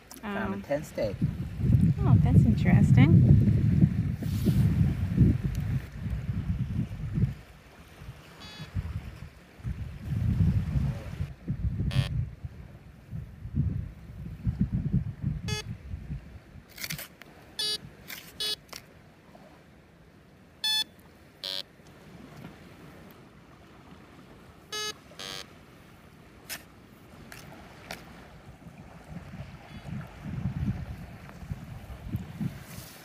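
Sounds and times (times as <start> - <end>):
wind rumble on microphone: 0.0 - 18.6, 27.0 - 33.0
metal detector beeps: 8.4 - 8.8, 11.9 - 12.2, 15.5 - 15.7, 17.6 - 18.6, 20.6 - 21.7, 24.7 - 25.5.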